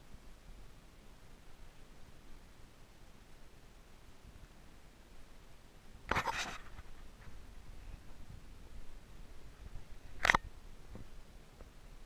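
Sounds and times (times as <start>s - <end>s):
faint low rumble: 0.0s - 12.0s
soft bumps of handheld camera: 6.1s - 11.8s.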